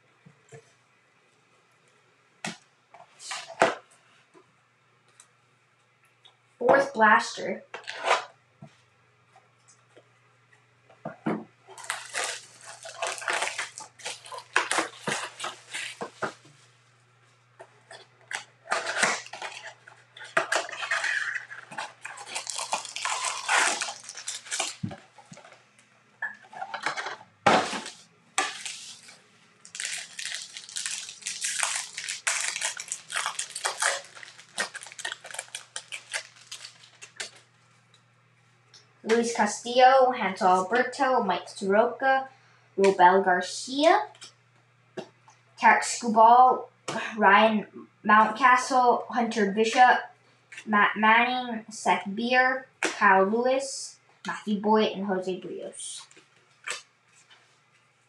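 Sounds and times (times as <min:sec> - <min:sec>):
cardboard and wrappers crinkling: 0:11.7 - 0:16.6, 0:17.9 - 0:25.6, 0:26.4 - 0:37.7.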